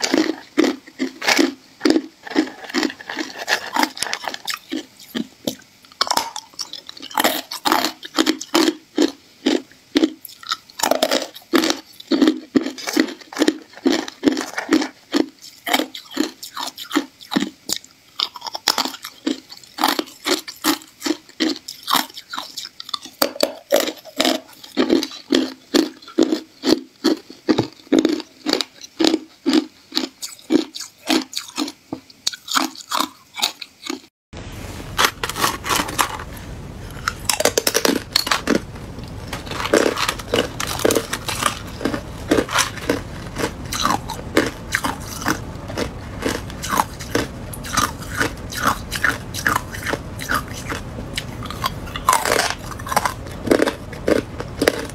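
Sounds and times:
ice being chewed and crunched: 0:00.0 - 0:34.1, 0:36.9 - 0:54.9
steady hiss: 0:34.4 - 0:54.9.

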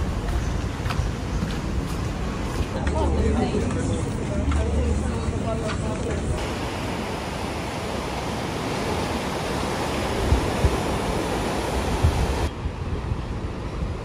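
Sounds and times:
surf washing against rocks: 0:06.4 - 0:12.5
wind thumps on microphone: 0:10.0 - 0:14.0.

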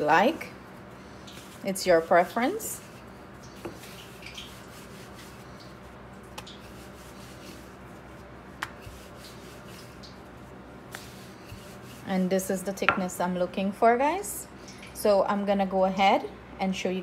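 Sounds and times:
rolling pin rubbing on dough: 0:01.4 - 0:12.4.

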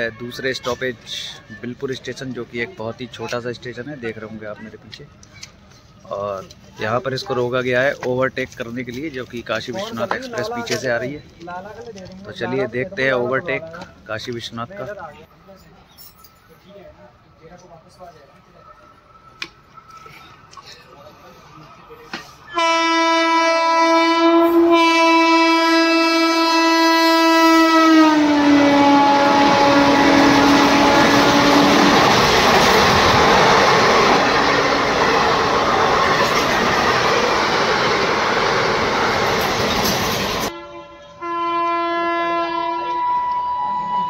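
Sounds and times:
train horn: 0:22.5 - 0:32.2, 0:40.4 - 0:44.0
train coaches rushing and rattling: 0:24.7 - 0:40.7.

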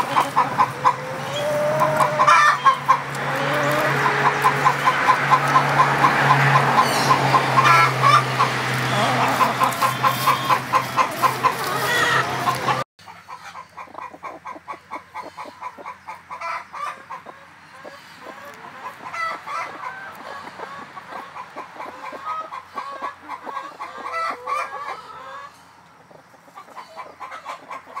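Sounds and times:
hens clucking: 0:00.0 - 0:28.0.

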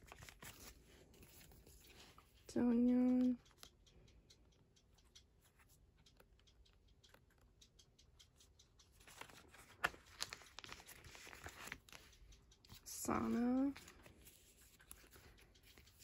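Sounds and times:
plastic binder pages rustling: 0:00.0 - 0:02.4, 0:08.9 - 0:12.1, 0:12.7 - 0:16.0.

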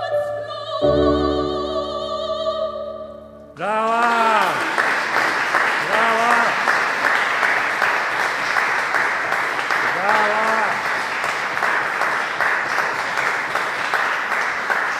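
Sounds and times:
audience applauding: 0:03.6 - 0:14.9.

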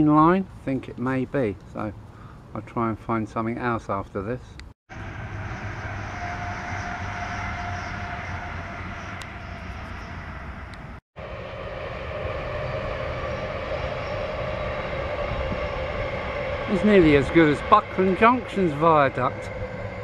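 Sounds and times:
electric train rumbling on rails: 0:04.9 - 0:20.0
faint steady whine: 0:04.9 - 0:20.0.

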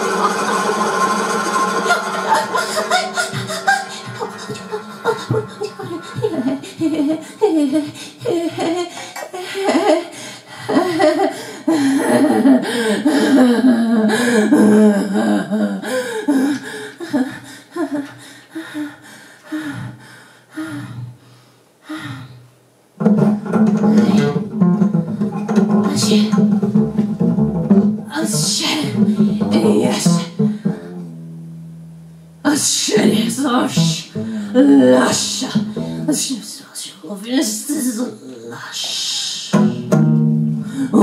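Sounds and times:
woman singing wordless warbling: 0:02.3 - 0:09.0, 0:12.1 - 0:16.1, 0:23.8 - 0:24.5, 0:25.7 - 0:26.6, 0:28.0 - 0:31.0, 0:32.4 - 0:39.9, 0:40.6 - 0:41.0
acoustic double bass: 0:23.0 - 0:36.3, 0:39.4 - 0:41.0.

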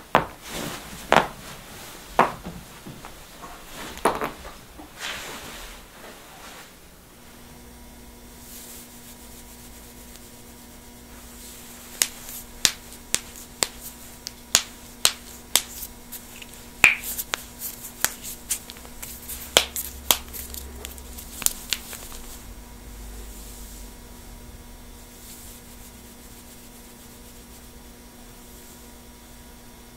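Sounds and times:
knuckles cracking: 0:12.0 - 0:22.3.

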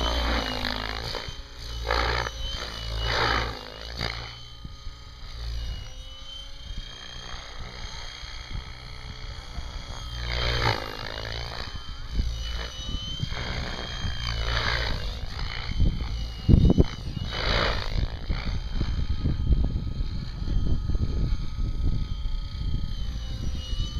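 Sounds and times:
rotor blades whooshing: 0:00.0 - 0:04.6
helicopter drive whine: 0:00.0 - 0:23.9.

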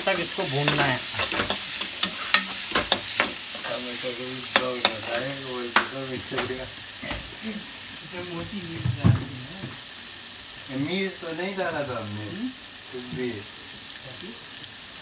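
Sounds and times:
spatula scraping the pan: 0:00.0 - 0:07.2
onion and tomato sizzling in oil: 0:00.0 - 0:15.0.

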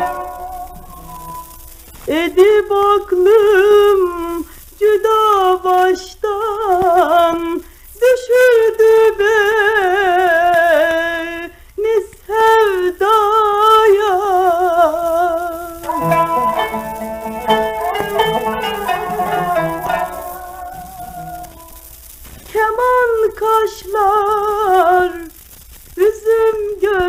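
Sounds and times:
woman singing with vibrato: 0:00.0 - 0:03.8, 0:15.8 - 0:22.0.

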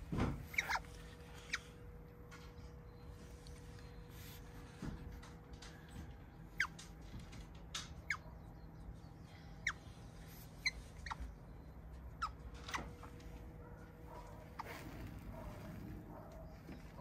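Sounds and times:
low steady hum: 0:00.0 - 0:17.0
animal squeaky chirps: 0:00.4 - 0:01.7, 0:06.6 - 0:06.8, 0:08.0 - 0:08.5, 0:09.3 - 0:13.1.

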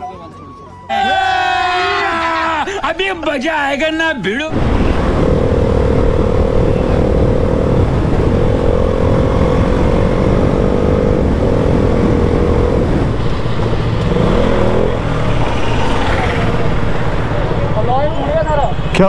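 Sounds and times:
wind rush on microphone: 0:04.5 - 0:17.4
motorcycle engine running: 0:04.6 - 0:17.7.

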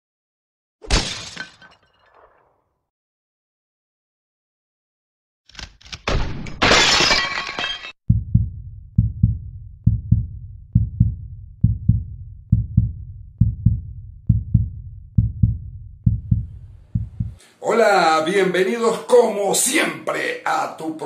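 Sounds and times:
glass shattering crash: 0:00.8 - 0:02.6, 0:06.0 - 0:08.0
heartbeat-like double thump: 0:08.1 - 0:17.4.

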